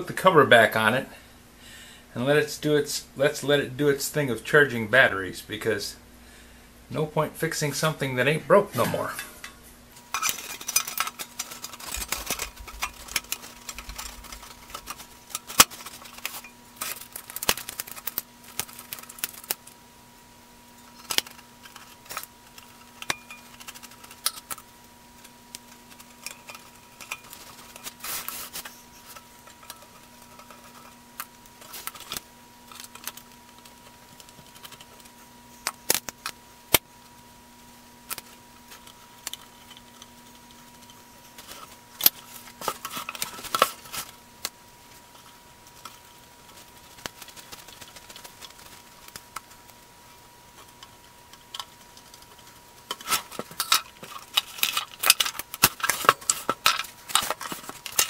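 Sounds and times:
faint steady hum: 0.0s - 58.0s
metal clicks and clatters: 10.1s - 19.7s, 21.0s - 24.6s, 25.2s - 28.0s, 28.6s - 35.1s, 50.6s - 58.0s.

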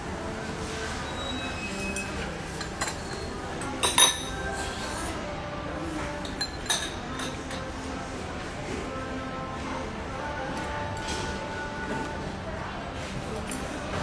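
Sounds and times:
cutlery clinking on ceramic: 2.0s - 4.5s, 6.2s - 7.7s.

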